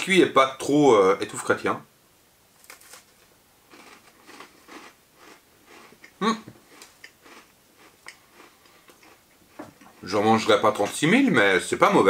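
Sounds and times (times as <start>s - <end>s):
person chewing crunchy biscuit: 3.7s - 10.2s.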